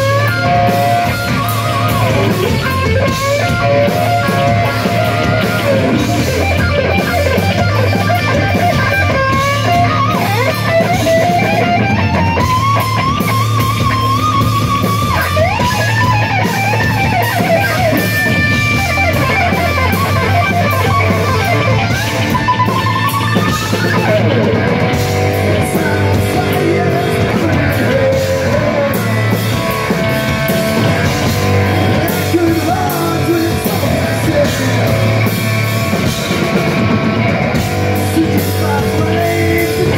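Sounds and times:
lead guitar bending pitch: 0.0 - 39.9
rock band playing live: 0.0 - 39.9.

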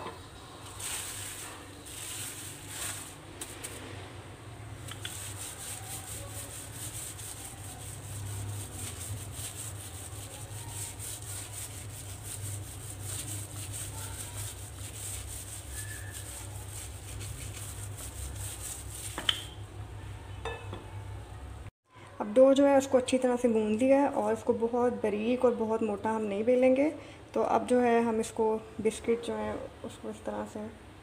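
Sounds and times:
plastic sheet crinkling: 0.6 - 3.8
rolling pin rubbing on dough: 4.8 - 19.4.

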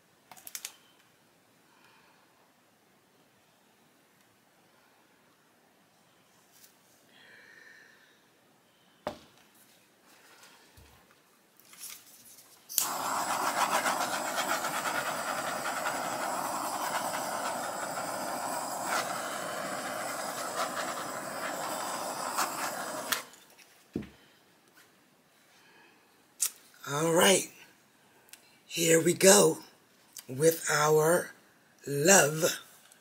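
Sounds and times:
butane torch hissing: 12.7 - 23.5.

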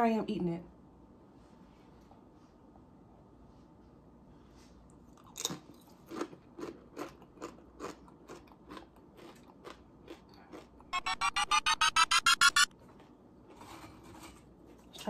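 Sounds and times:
chip crunching: 5.1 - 10.8
chewing crunches: 5.1 - 10.9.

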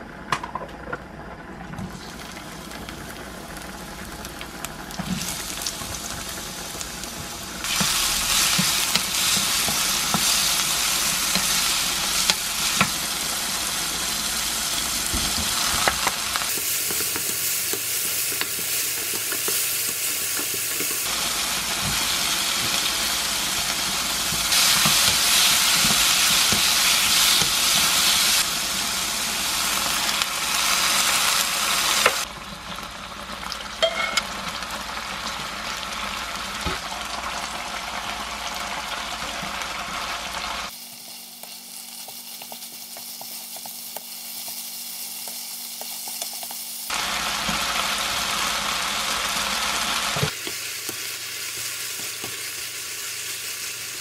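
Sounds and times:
vegetables sizzling in oil: 1.9 - 54.0.

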